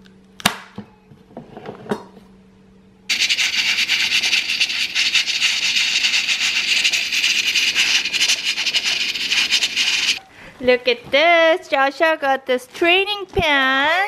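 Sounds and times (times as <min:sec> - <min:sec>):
rice cooker steam hissing: 0:03.1 - 0:10.2.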